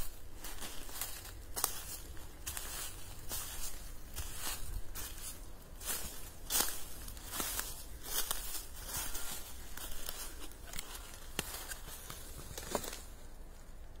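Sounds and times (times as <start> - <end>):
footsteps crunching dry leaves: 0.0 - 13.3
twigs snapping: 9.7 - 13.1.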